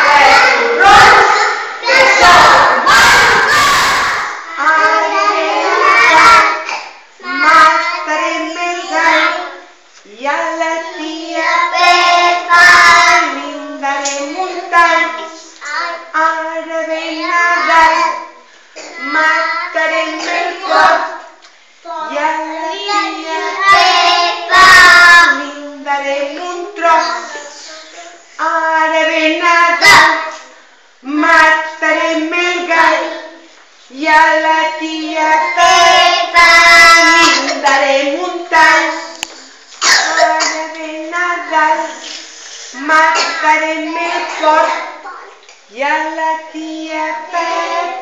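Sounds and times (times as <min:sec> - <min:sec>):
children singing in unison: 0:00.0 - 0:09.8, 0:10.5 - 0:21.3, 0:22.0 - 0:25.6, 0:34.3 - 0:42.2, 0:42.8 - 0:45.0, 0:46.1 - 0:48.0.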